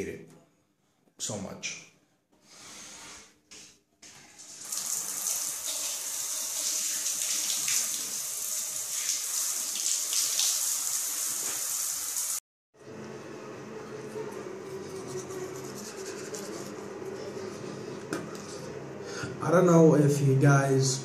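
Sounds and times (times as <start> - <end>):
water running from a bath tap: 4.4 - 12.4.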